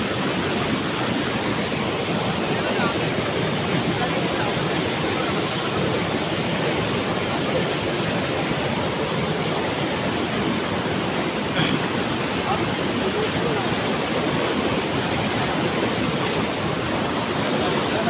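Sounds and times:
floodwater rushing: 0.0s - 18.0s.

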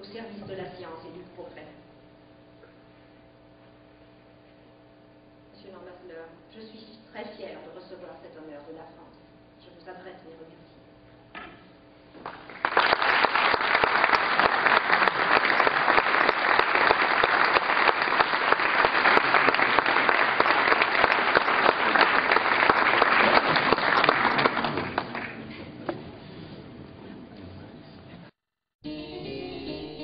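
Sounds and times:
audience applauding: 12.2s - 25.5s.

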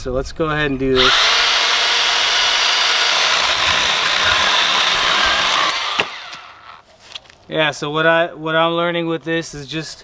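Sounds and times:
chainsaw cutting through log: 1.0s - 6.8s.

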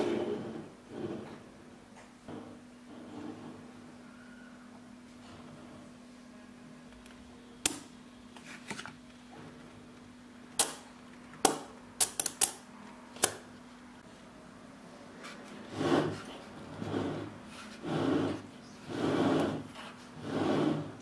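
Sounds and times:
magnet block rubbing on table: 15.7s - 21.0s.

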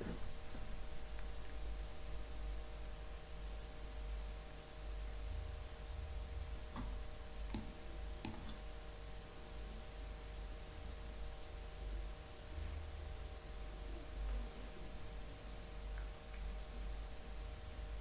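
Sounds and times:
low room hum: 0.0s - 18.0s
mouse clicks: 7.5s - 8.6s.

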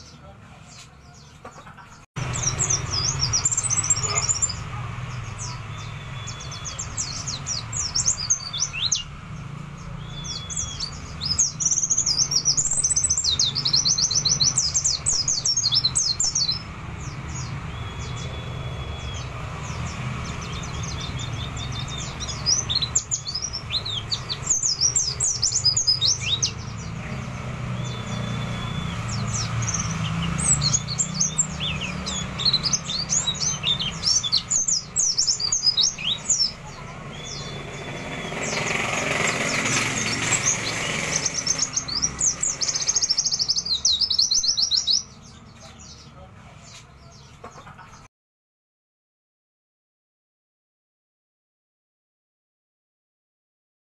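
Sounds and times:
caged bird singing chirps and trills: 0.0s - 48.1s.

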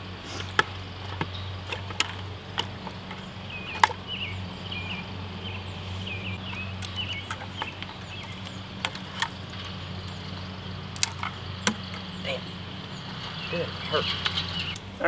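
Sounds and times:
bird chirping: 0.0s - 15.0s
twigs knocking against buckets: 0.0s - 15.0s.

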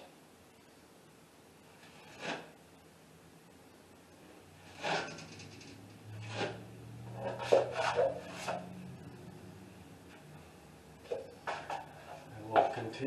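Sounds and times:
knife scraping on pan edge: 1.8s - 2.5s, 4.7s - 5.6s, 6.2s - 8.7s
taping knife scraping compound: 1.8s - 2.6s, 4.6s - 8.7s.

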